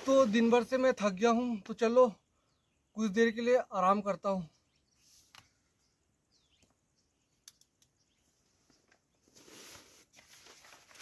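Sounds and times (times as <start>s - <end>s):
rustling inside a nylon tent: 0.0s - 1.0s, 8.4s - 11.0s
faint clicks: 7.4s - 8.0s.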